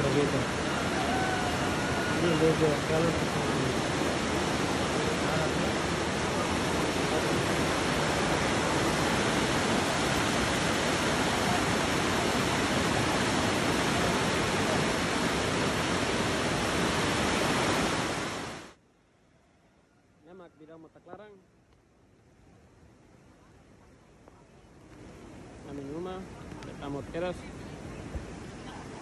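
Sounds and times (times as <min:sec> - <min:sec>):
floodwater rushing: 0:00.0 - 0:18.8.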